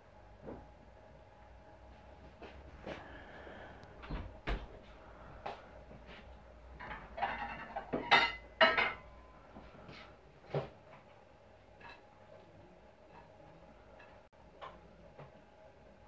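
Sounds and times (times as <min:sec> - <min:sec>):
knocks and clatter of handled objects: 0:05.5 - 0:09.0.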